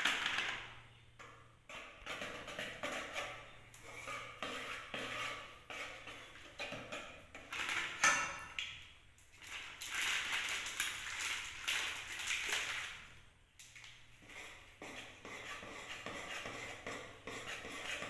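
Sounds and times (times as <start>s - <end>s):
whisk scraping a pot: 1.7s - 7.7s, 14.2s - 18.0s.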